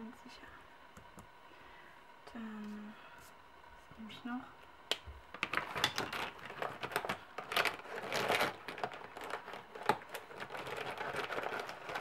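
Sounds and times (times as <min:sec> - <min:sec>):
markers rustling and scraping: 0:05.5 - 0:12.0.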